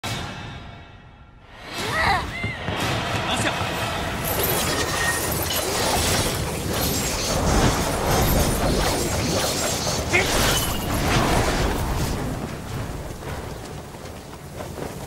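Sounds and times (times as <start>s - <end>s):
metal chain rattling and clinking: 4.2s - 11.2s.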